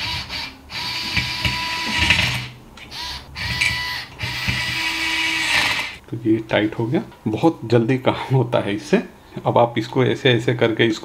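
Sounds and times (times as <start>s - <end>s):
cordless screwdriver motor running: 0.0s - 6.0s.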